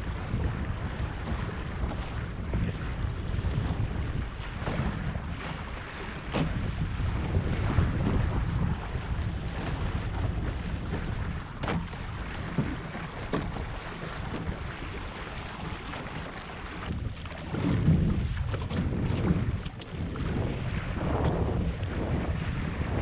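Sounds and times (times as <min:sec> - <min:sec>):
water rushing past hulls: 0:00.0 - 0:23.0
wind buffeting microphone: 0:00.0 - 0:23.0
water slaps: 0:10.9 - 0:20.4.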